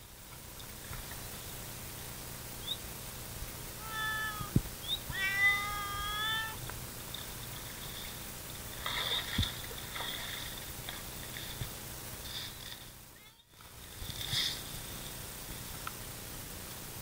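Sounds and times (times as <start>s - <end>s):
animal meow-like calls: 3.8s - 6.6s.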